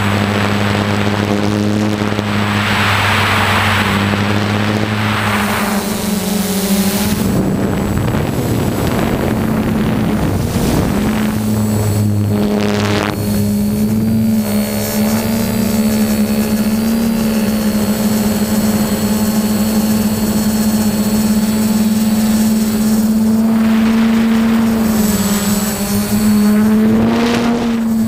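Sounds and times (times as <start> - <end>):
snowmobile engine droning: 0.0 - 28.0
short rushing noise: 2.1 - 6.2.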